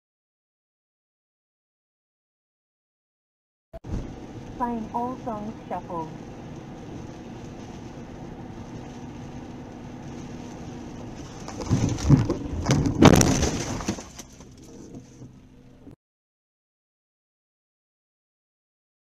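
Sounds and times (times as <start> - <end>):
car interior driving noise: 3.8 - 16.0
loud crunching impacts: 10.6 - 15.4
breaking and scattering debris: 11.2 - 14.6.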